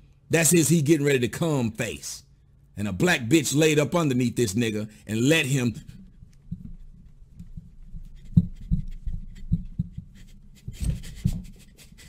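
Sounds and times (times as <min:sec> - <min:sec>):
rubbing and rustling: 0:05.7 - 0:12.0
dull low thumps: 0:05.8 - 0:11.6.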